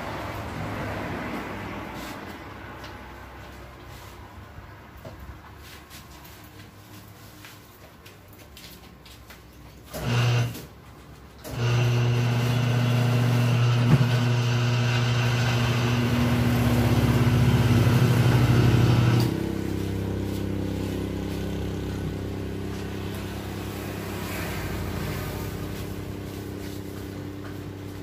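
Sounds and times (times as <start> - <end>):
electric motor humming: 11.5 - 26.0.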